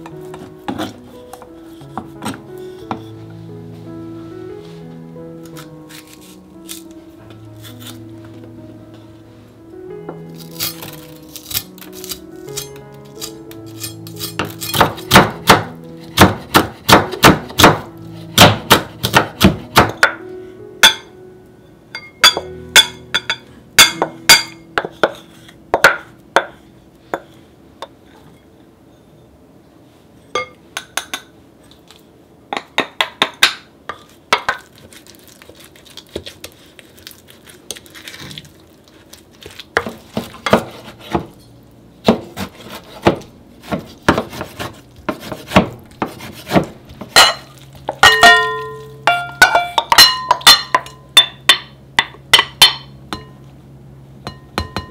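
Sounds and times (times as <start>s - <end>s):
knife chopping on wooden board: 14.3s - 20.0s, 39.8s - 41.3s, 42.0s - 47.4s
knife clinking against glass bowl: 47.2s - 51.4s.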